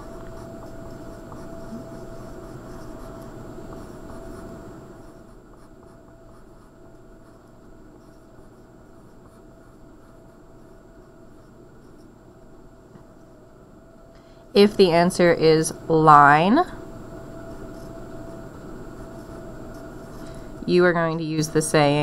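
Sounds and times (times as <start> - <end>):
pencil scratching on paper: 0.0 - 12.1, 17.5 - 20.4.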